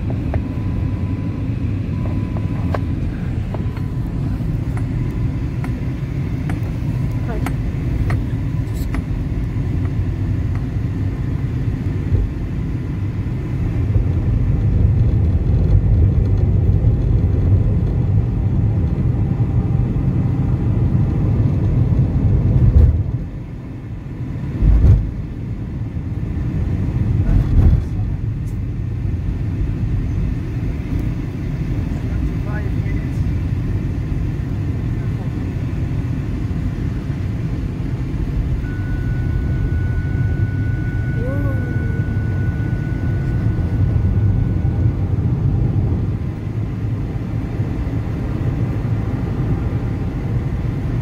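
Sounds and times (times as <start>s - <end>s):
car cabin road rumble: 0.0s - 51.0s.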